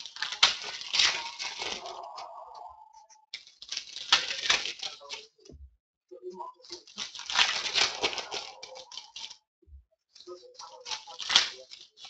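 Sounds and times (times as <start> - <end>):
foil wrappers crinkling and tearing: 0.0 - 2.2, 3.4 - 5.4, 6.6 - 9.4, 10.2 - 12.0.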